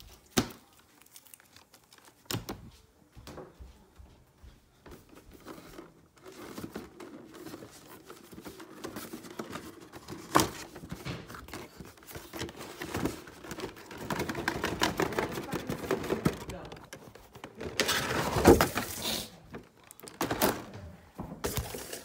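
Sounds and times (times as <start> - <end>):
cardboard packaging rustling: 5.1 - 20.7, 21.4 - 22.0.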